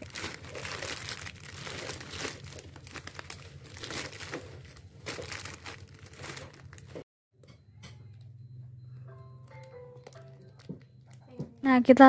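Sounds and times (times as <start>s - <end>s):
plastic wrappers crinkling: 0.0s - 7.0s, 9.6s - 11.6s.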